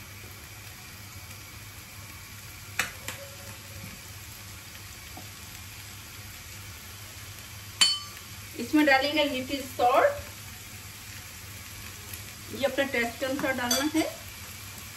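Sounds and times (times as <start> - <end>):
vegetables sizzling in a frying pan: 0.0 - 14.9
clink: 7.8 - 8.2.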